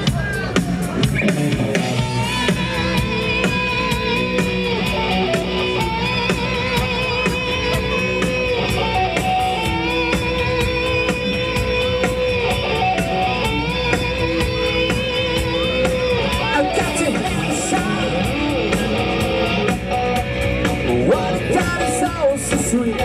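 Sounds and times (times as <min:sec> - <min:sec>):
bass guitar: 0:00.0 - 0:23.0
drum kit steady beat: 0:00.0 - 0:23.0
electric guitar bending notes: 0:00.9 - 0:23.0.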